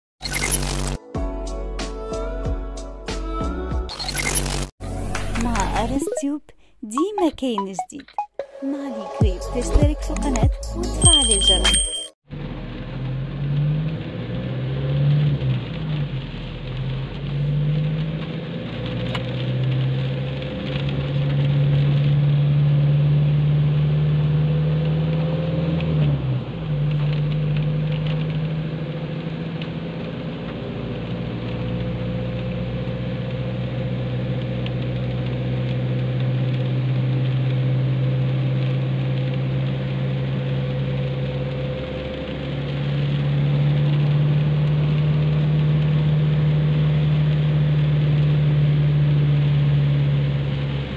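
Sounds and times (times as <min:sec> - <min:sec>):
tyre and road noise: 0:11.0 - 0:50.9.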